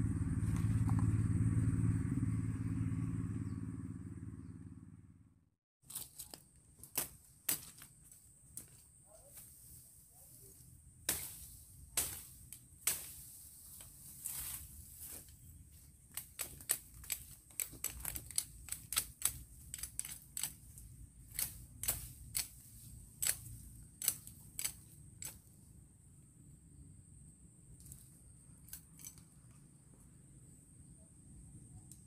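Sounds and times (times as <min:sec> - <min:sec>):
leaves and branches rustling: 0:05.8 - 0:25.6
woody stems cracking and snapping: 0:05.9 - 0:08.8, 0:12.0 - 0:13.2, 0:16.0 - 0:25.4.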